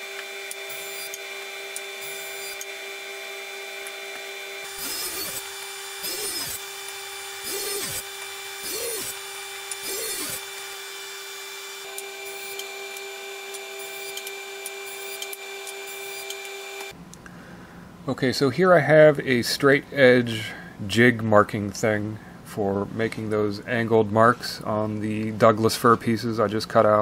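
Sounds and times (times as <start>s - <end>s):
table saw cutting wood: 0.0s - 16.9s
table saw running hum: 0.0s - 17.0s.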